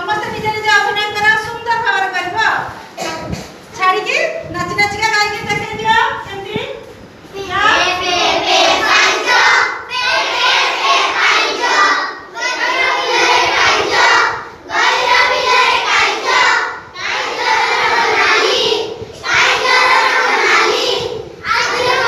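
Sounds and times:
children singing in unison: 0:07.7 - 0:22.0.

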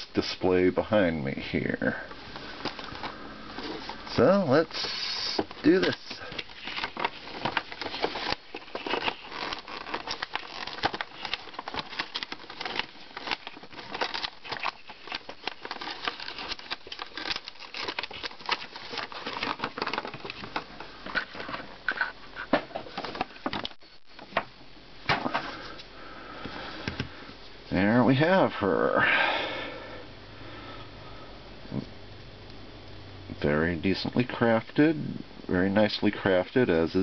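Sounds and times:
plastic crinkling and crackling: 0:02.2 - 0:23.8
cardboard box rustling: 0:02.4 - 0:21.7.

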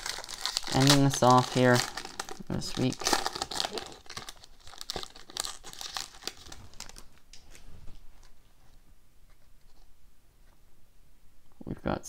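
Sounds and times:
foil wrapper crinkling and tearing: 0:00.0 - 0:07.2.

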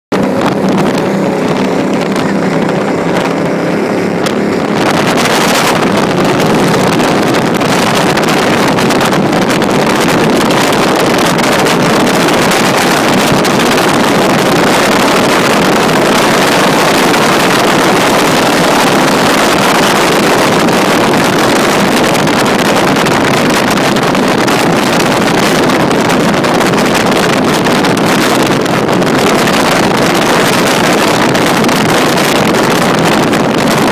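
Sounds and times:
powerboat engine drone: 0:00.0 - 0:33.9
rush of wind and water: 0:00.0 - 0:33.9.

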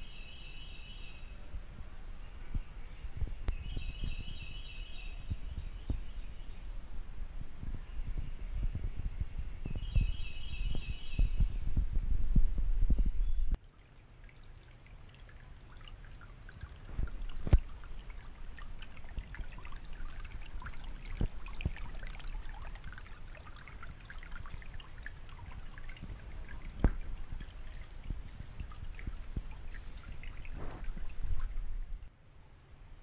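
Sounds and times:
water dripping into rock pool: 0:13.6 - 0:32.1.

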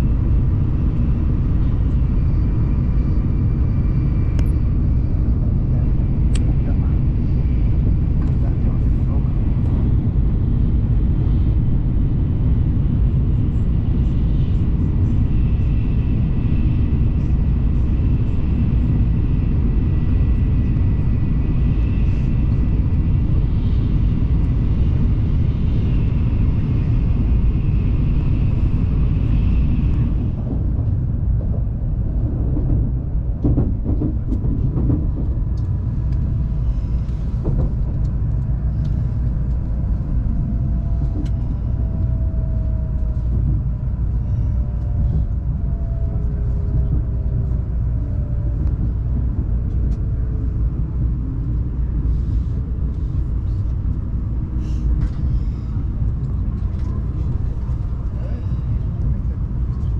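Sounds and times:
train rumble with high whine: 0:00.0 - 0:59.9.

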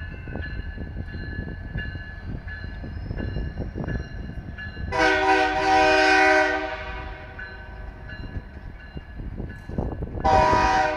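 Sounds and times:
locomotive air horn chord: 0:04.9 - 0:07.4, 0:10.2 - 0:10.9.

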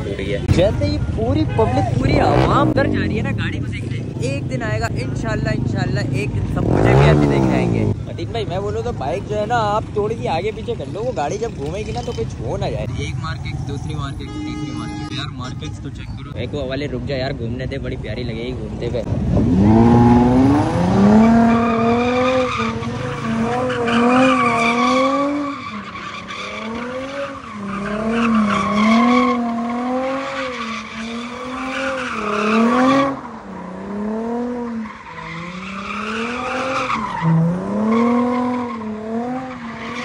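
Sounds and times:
car engine revving hard: 0:06.6 - 0:08.0, 0:19.1 - 0:25.7, 0:26.4 - 0:40.0
tyres squealing and skidding: 0:08.7 - 0:16.4, 0:19.4 - 0:40.0.

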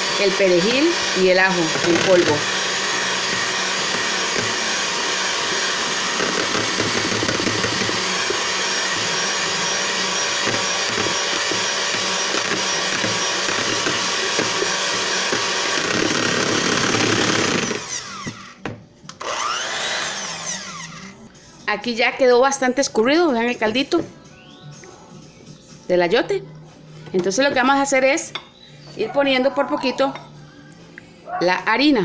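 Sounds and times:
electric hand mixer whipping eggs: 0:00.0 - 0:18.6, 0:19.2 - 0:21.1.

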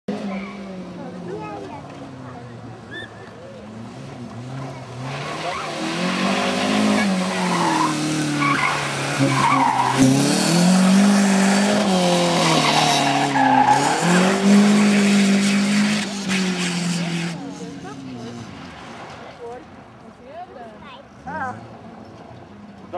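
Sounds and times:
tyre squeal: 0:02.9 - 0:03.3, 0:06.8 - 0:10.2
car engine revving hard: 0:03.7 - 0:18.6.

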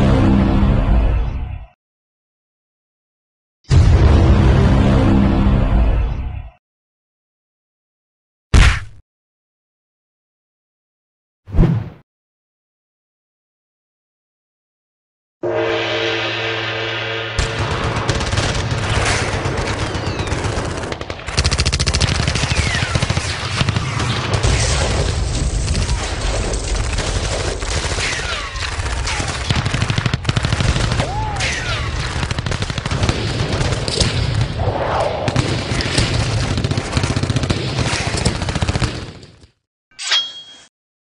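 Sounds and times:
machine-gun fire: 0:17.4 - 0:31.2, 0:31.8 - 0:34.6, 0:35.3 - 0:39.4.

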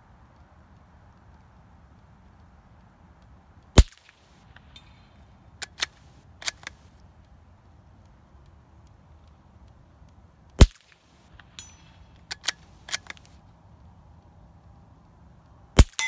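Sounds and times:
rifle bolt metallic clicks: 0:03.8 - 0:06.9, 0:10.6 - 0:13.4
suppressed rifle shot: 0:15.8 - 0:16.0.

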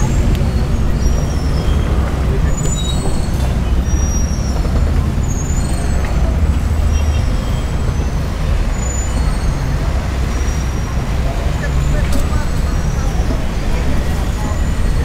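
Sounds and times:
low rumble of road traffic: 0:00.0 - 0:15.0.

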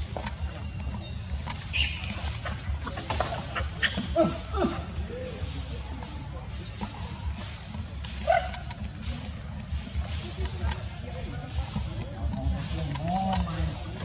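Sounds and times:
high insect buzz: 0:00.0 - 0:14.0
baby monkey squeaky calls: 0:01.7 - 0:04.5.

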